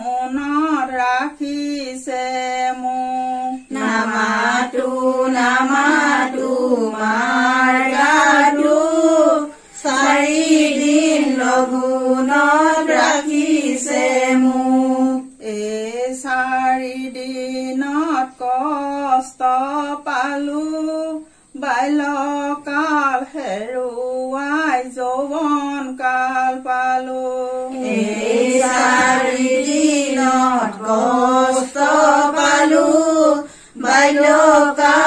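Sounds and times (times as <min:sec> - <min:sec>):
woman singing slowly: 0:00.0 - 0:35.0
singer breathing: 0:33.4 - 0:33.8.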